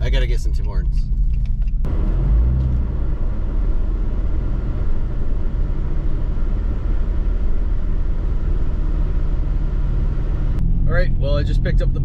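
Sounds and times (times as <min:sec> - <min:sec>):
vehicle engine low rumble: 0:00.0 - 0:12.0.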